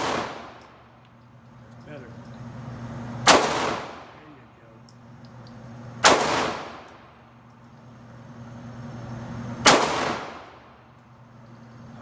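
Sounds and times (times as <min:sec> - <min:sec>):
handgun shots echoing: 0:00.0 - 0:00.8, 0:03.2 - 0:04.2, 0:06.0 - 0:07.0, 0:09.6 - 0:10.7
steady low hum: 0:00.0 - 0:12.0.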